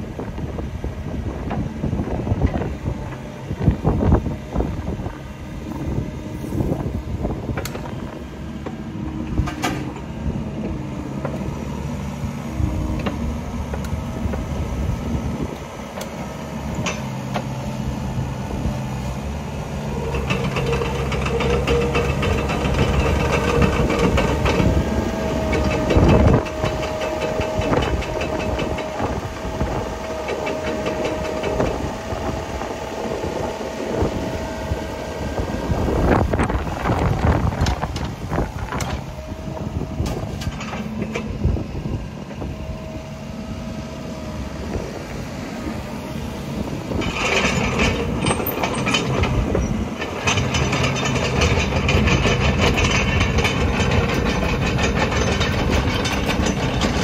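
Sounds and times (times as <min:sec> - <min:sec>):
diesel engine running: 0:00.0 - 0:57.0
tracks clattering: 0:46.9 - 0:57.0.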